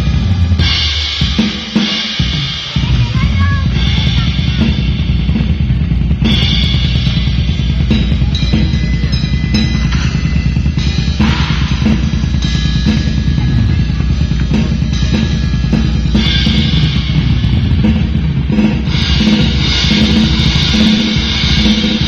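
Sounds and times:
cymbals: 0.0s - 22.0s
drum kit beat: 0.0s - 22.0s.

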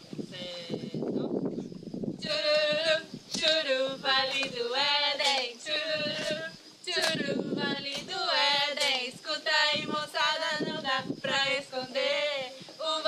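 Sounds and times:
women singing together: 0.0s - 1.4s, 2.2s - 13.0s
hands clapping: 4.3s - 4.6s, 5.2s - 5.5s, 7.0s - 7.2s.

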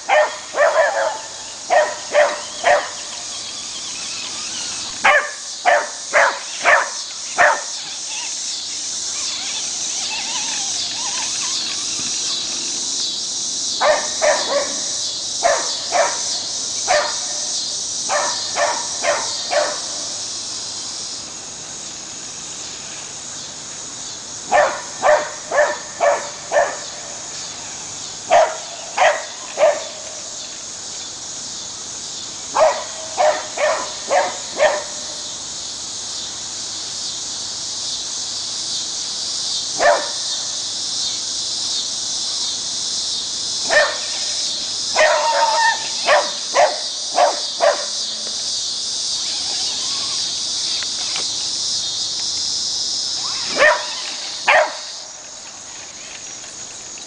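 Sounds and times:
insects chorus: 0.0s - 57.0s
dog barking: 0.1s - 3.0s, 5.0s - 7.7s, 13.8s - 16.3s, 16.9s - 17.3s, 18.1s - 19.9s, 24.5s - 26.9s, 28.3s - 30.0s, 32.6s - 35.0s, 39.8s - 40.2s, 43.7s - 44.2s, 45.0s - 48.0s, 53.6s - 54.9s.

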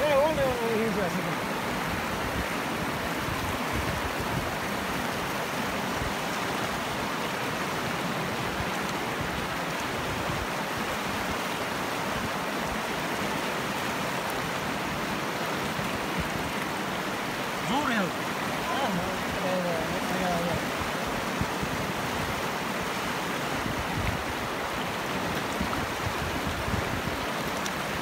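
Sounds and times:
river rushing over stones: 0.0s - 28.0s.

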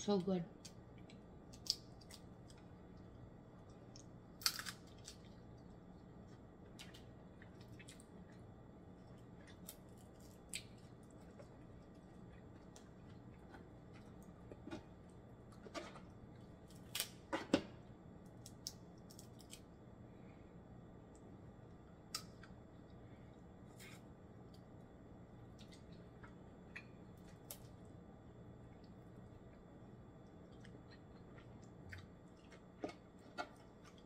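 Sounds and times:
quiet chewing: 0.6s - 16.6s, 25.4s - 34.0s.

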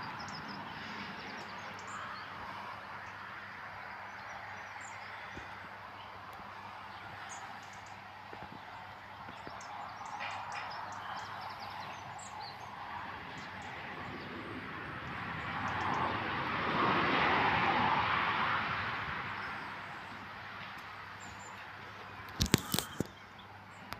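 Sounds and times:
vehicle passing: 0.0s - 22.4s.

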